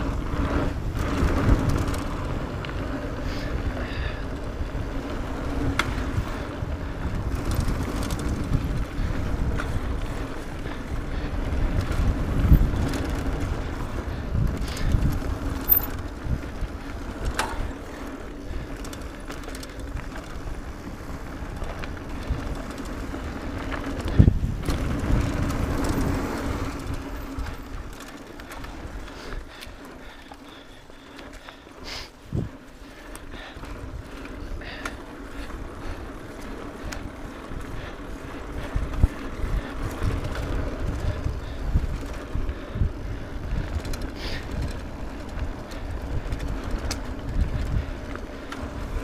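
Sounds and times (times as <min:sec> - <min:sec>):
bike rattling and knocking: 0:00.0 - 0:49.0
bike tyres rumbling over dirt: 0:00.0 - 0:49.0.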